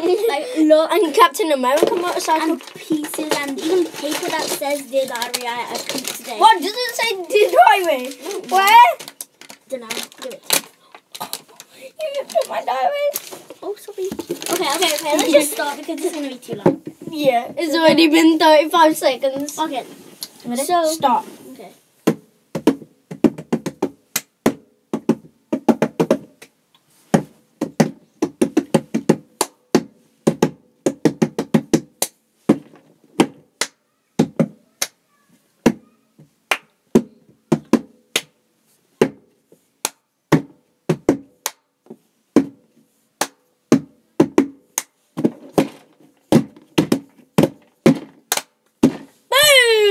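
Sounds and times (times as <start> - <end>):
hands drumming on a box: 22.1 - 26.4, 27.1 - 33.5, 36.9 - 38.3, 40.3 - 42.6, 43.2 - 44.6, 45.2 - 49.1.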